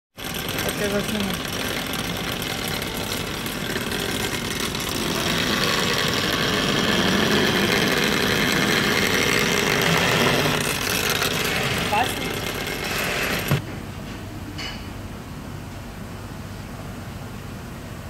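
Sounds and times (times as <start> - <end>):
industrial sewing machine running: 0.1 - 13.6.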